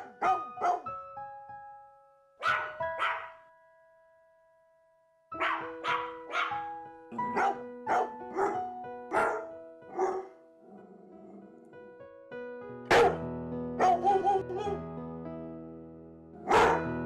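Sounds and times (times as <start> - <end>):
dog barking: 0.0 - 0.9, 2.4 - 3.4, 5.4 - 6.6, 7.2 - 10.4, 12.9 - 13.2, 13.8 - 14.8, 16.4 - 17.0
piano music: 0.0 - 17.0.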